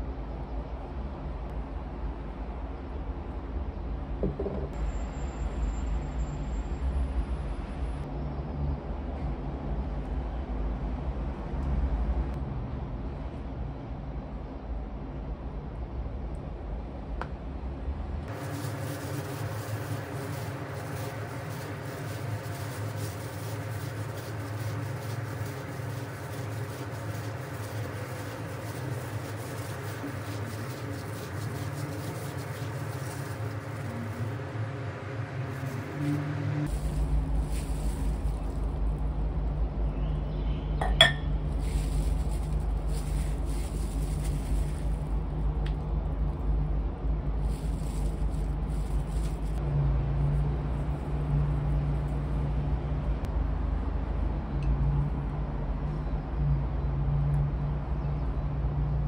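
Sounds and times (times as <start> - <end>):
road traffic rumble: 0.0 - 59.0
low engine hum: 6.9 - 59.0
noodles squishing: 18.3 - 38.9, 41.4 - 45.3
plastic glove crinkling: 18.3 - 39.6, 40.8 - 46.5, 47.3 - 49.6.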